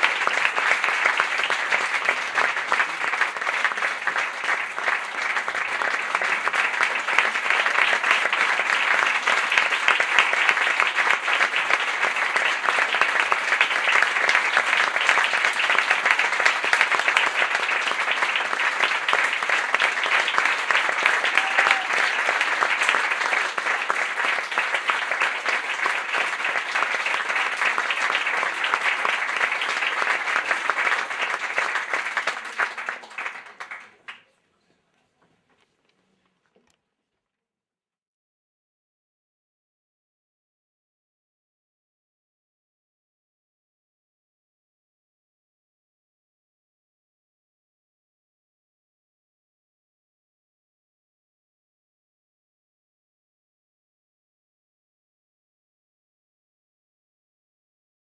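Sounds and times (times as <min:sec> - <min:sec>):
audience applauding: 0:00.0 - 0:34.4.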